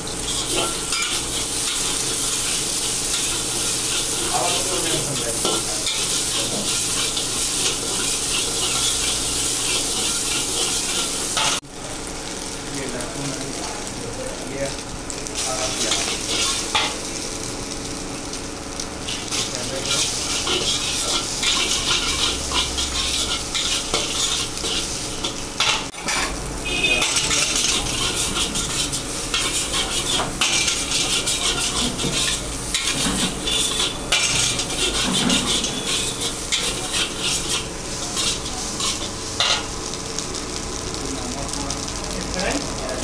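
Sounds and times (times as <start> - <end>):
food sizzling: 0.0 - 43.0
metal spatula scraping a wok: 0.2 - 11.6, 15.7 - 17.0, 19.1 - 39.7.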